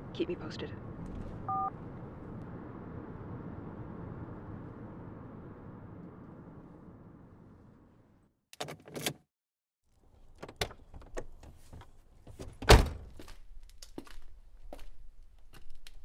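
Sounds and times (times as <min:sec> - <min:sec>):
door clicks and knocks: 0:12.4 - 0:13.1
door heavy thud: 0:12.6 - 0:13.1.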